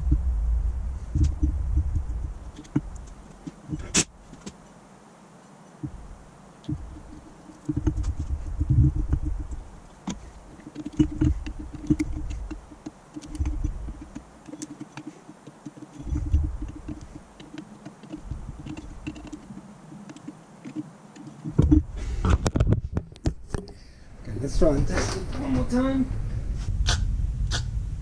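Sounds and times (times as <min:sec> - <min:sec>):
low knocks of metal parts: 0:00.0 - 0:04.6, 0:05.8 - 0:23.8
small clicks and scraping: 0:01.1 - 0:04.7, 0:06.6 - 0:23.8.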